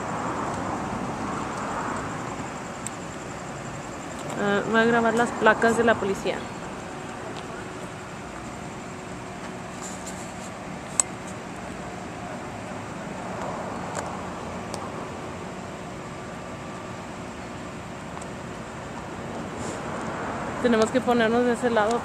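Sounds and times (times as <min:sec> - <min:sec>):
street noise: 0:00.0 - 0:22.0
vehicles idling: 0:00.0 - 0:22.0.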